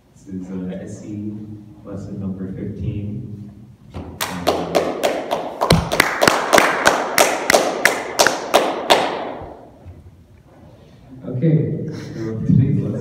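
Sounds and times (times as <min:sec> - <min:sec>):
sharp percussive hits: 0:04.2 - 0:09.6.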